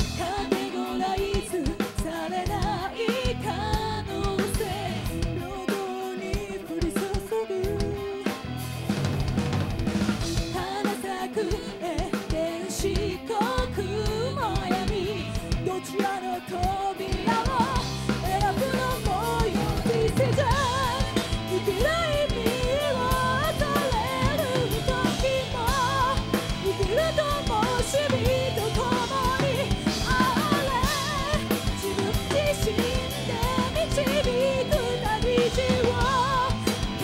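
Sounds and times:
woman singing lead: 0.0s - 8.5s, 10.3s - 37.0s
bass guitar: 0.0s - 37.0s
drum kit: 0.0s - 37.0s
electric guitar: 0.0s - 37.0s.

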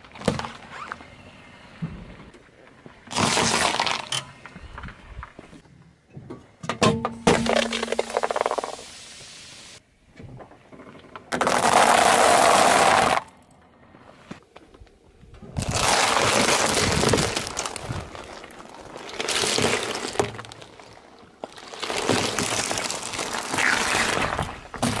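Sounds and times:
tyre crushing eggs: 15.6s - 25.0s.

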